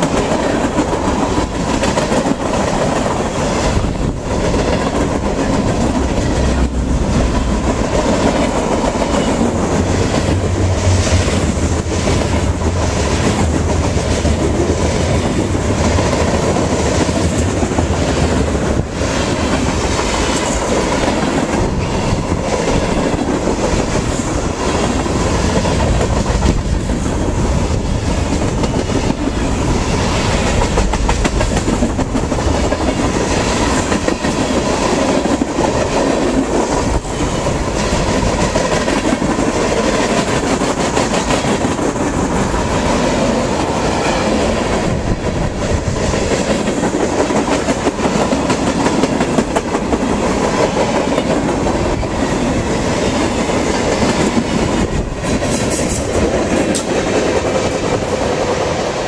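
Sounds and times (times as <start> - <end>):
train wheels rumbling on rail: 0.0 - 59.0
wheels clickety-clack on rail joints: 0.0 - 59.0.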